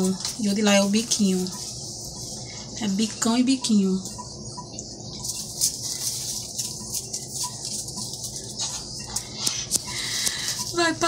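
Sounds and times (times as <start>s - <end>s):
feathers rustling and crackling: 5.2s - 9.2s.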